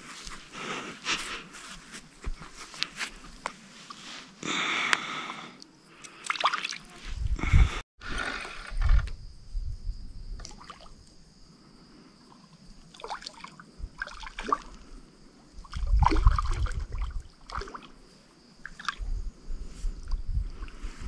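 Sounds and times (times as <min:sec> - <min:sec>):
night insects trilling: 0:00.0 - 0:21.0
water splashes: 0:06.2 - 0:07.0, 0:12.9 - 0:14.8, 0:15.6 - 0:18.0
water trickling and sloshing: 0:12.2 - 0:19.2.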